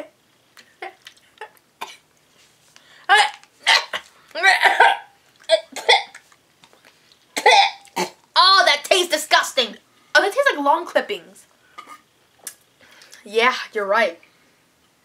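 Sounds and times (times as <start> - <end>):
boy coughing and gagging: 3.1 - 6.2, 7.4 - 8.2.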